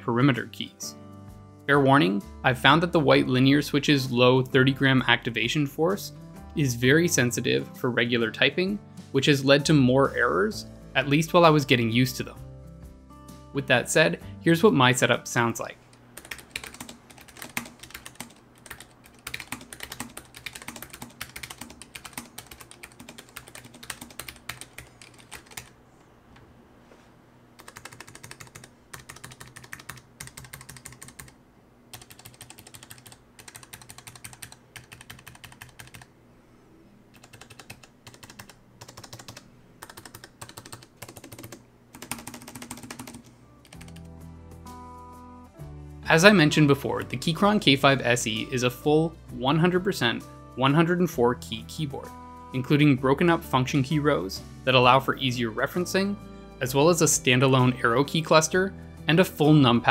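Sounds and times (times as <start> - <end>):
keyboard typing clacks: 16.2 - 25.7, 27.6 - 31.4, 32.0 - 36.1, 37.2 - 44.1.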